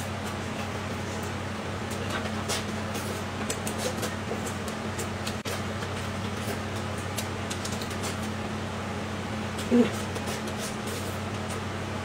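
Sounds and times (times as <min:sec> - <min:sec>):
low electrical hum: 0:00.0 - 0:12.0
person chewing with wet mouth clicks: 0:01.9 - 0:08.3.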